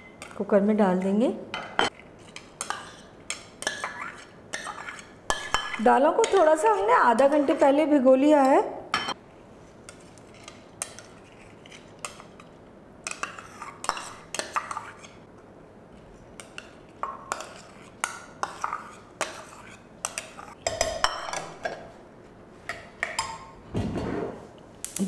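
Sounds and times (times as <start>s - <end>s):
spoon clinking against metal bowls: 0.0s - 7.7s, 8.4s - 9.2s.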